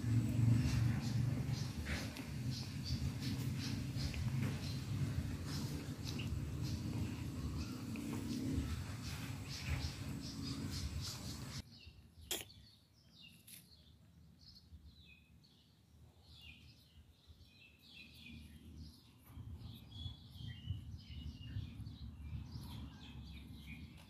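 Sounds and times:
low rumble: 0.0s - 11.6s
small birds chirping: 0.0s - 24.0s.

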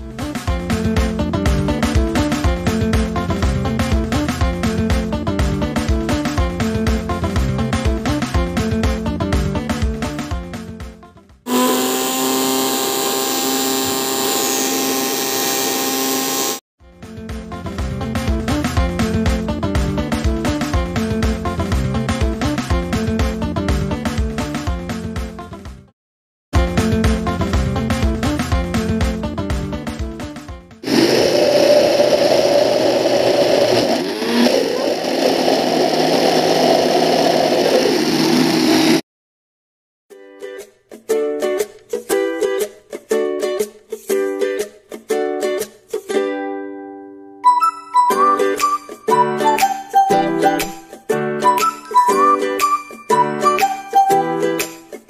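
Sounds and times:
mixer grinder motor whine: 11.5s - 16.6s, 30.8s - 39.0s.

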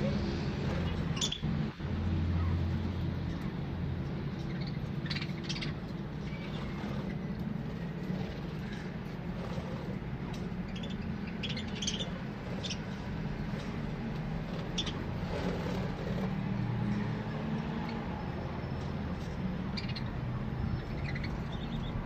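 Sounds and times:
budgerigars chirping: 0.7s - 1.7s, 4.3s - 9.0s, 10.6s - 13.7s, 14.4s - 15.3s, 19.6s - 22.0s.

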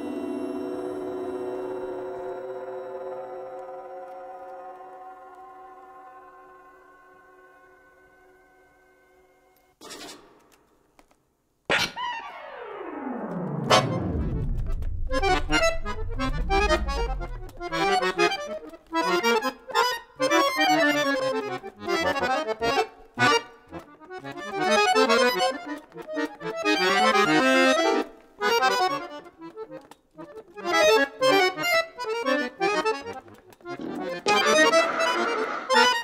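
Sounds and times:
low electronic tape tone: 0.0s - 9.3s, 12.3s - 18.2s
accordion chords: 0.0s - 9.6s, 13.3s - 36.0s.

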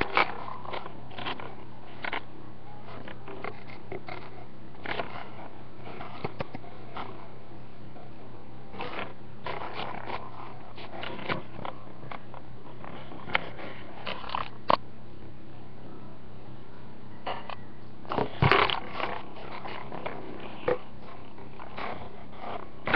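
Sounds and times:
plastic toys clicking and rustling: 0.0s - 2.2s, 8.8s - 14.8s.

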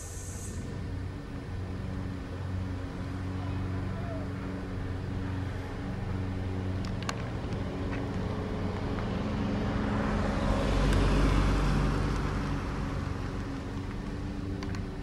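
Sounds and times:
car passing by: 5.1s - 14.5s.

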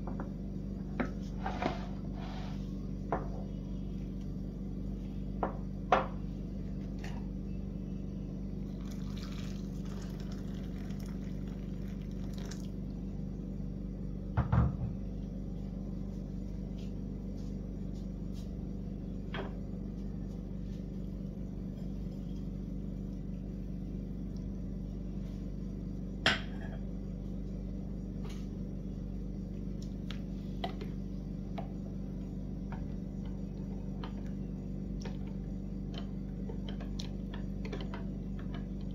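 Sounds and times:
steady low hum: 0.0s - 38.9s
water pouring into glass mug: 8.7s - 12.7s.

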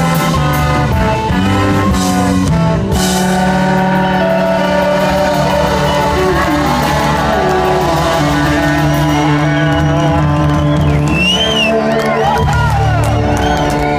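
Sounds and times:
live rock band playing: 0.0s - 13.9s.

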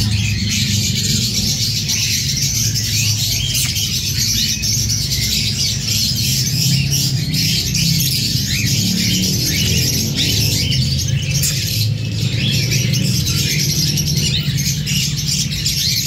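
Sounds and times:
cockatiels chirping: 0.0s - 16.0s.

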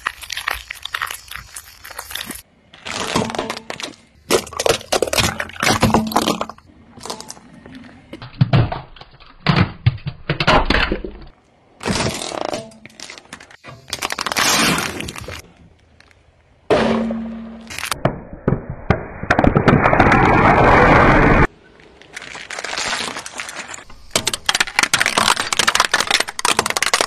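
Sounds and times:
plastic and candy crunching under tyre: 0.0s - 8.2s, 11.8s - 16.3s, 21.8s - 27.0s.

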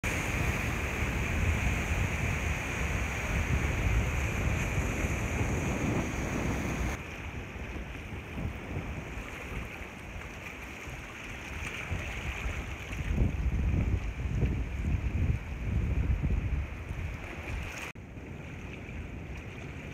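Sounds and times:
sea water washing against rocks: 0.0s - 15.6s
wind buffeting microphone: 0.0s - 19.9s.

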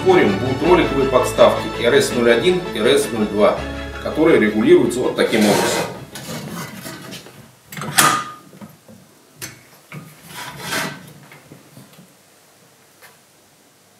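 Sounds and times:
metal stand clunks and scrapes: 5.3s - 8.4s.

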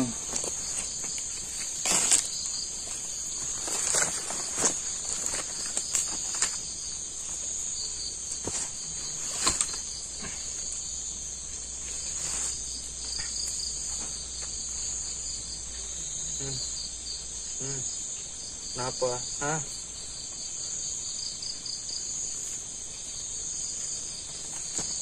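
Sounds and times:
crickets chirping: 0.0s - 25.0s
pulsing insect: 0.0s - 25.0s.

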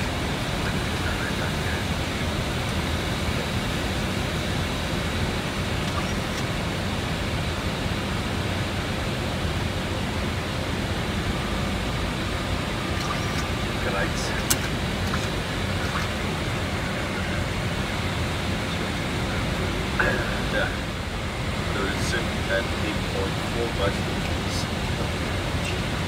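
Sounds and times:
airflow and ventilation rush: 0.0s - 26.0s
low engine drone: 0.0s - 26.0s.

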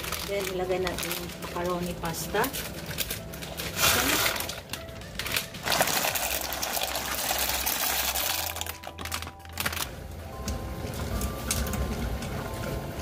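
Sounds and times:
dry pasta rattling into a pot: 2.4s - 9.8s.

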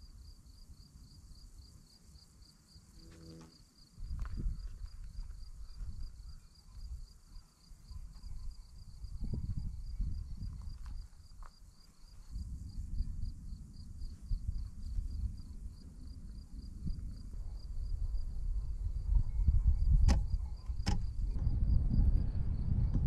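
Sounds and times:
crickets chirping: 0.0s - 23.0s
low rumble: 21.0s - 23.0s.

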